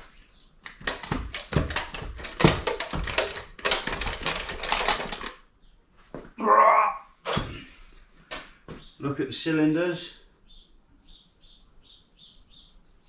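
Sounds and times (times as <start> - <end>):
metallic clattering and knocking: 0.7 - 5.4.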